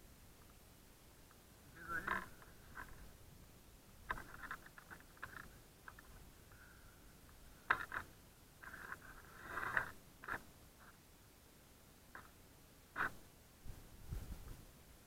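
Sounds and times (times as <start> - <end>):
gloves rubbing on rope: 7.7 - 11.0, 13.0 - 14.5.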